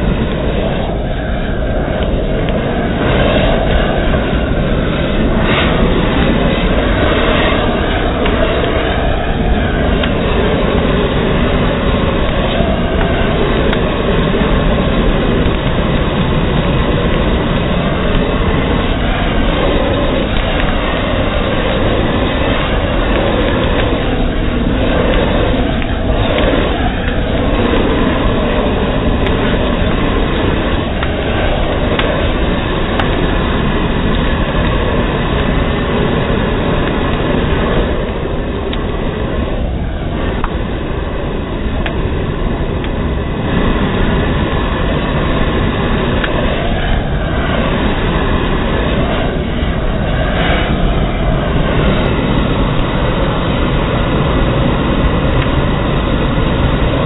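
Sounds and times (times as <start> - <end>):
twigs cracking in fire: 0.0 - 39.2
propane torch roaring: 0.0 - 57.0.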